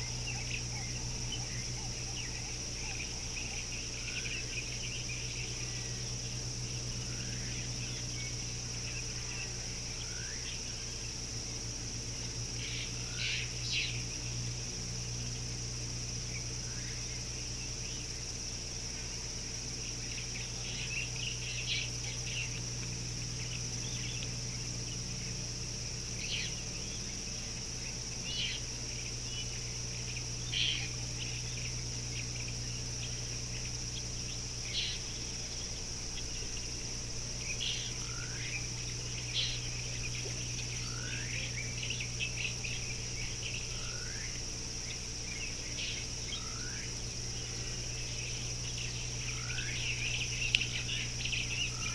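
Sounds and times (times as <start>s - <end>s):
high insect drone: 0.0s - 51.9s
low steady hum: 0.0s - 51.9s.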